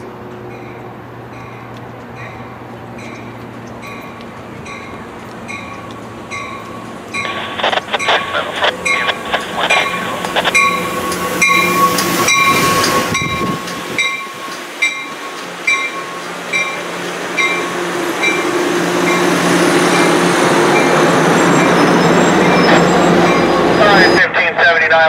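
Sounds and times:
passenger train rumbling past: 0.0 - 25.0
steady high tone: 4.7 - 24.2.

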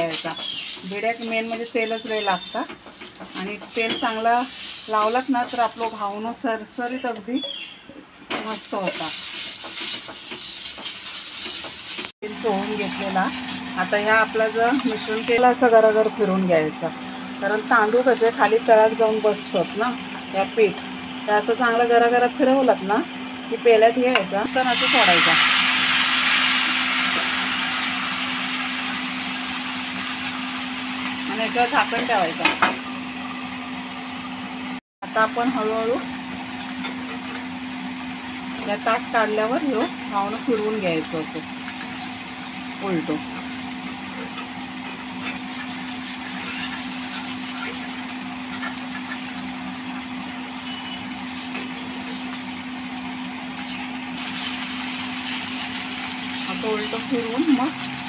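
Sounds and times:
metal spatula scraping: 0.0 - 6.2, 44.1 - 49.4
batter sizzling on hot pan: 0.0 - 6.5, 8.4 - 12.2, 24.5 - 32.6, 36.9 - 58.0
low mechanical hum: 0.0 - 58.0.

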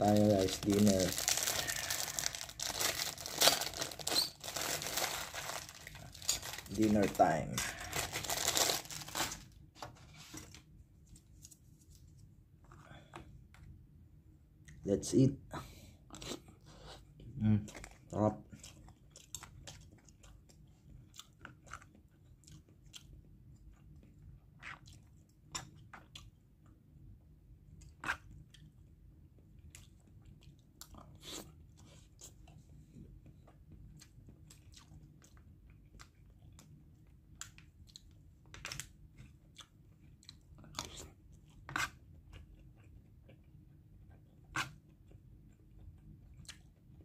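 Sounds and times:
faint low hum: 0.0 - 47.0
person chewing food: 16.0 - 26.8, 27.7 - 47.0.

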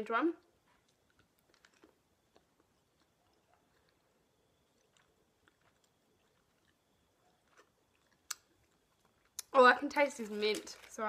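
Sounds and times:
mouth clicks from chewing: 7.4 - 9.5.

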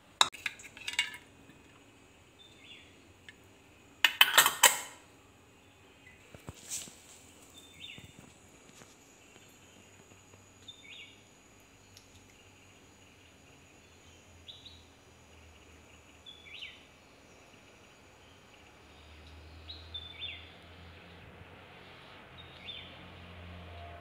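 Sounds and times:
metal lid clicking on glass jar: 4.1 - 5.0.

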